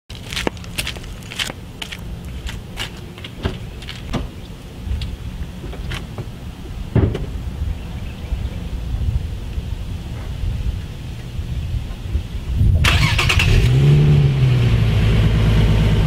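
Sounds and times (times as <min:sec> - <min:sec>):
footsteps and handling clicks: 0:00.1 - 0:04.2
loud low thump: 0:06.9 - 0:07.4.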